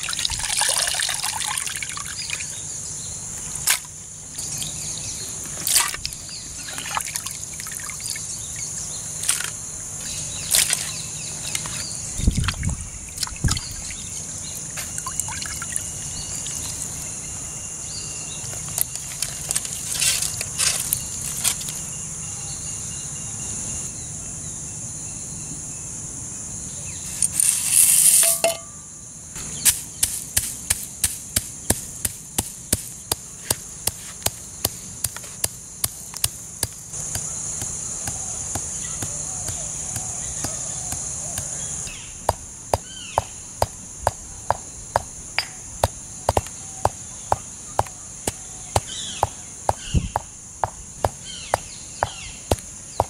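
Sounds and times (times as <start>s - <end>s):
water pouring: 0.0s - 2.2s
pestle pounding in mortar: 30.4s - 53.0s.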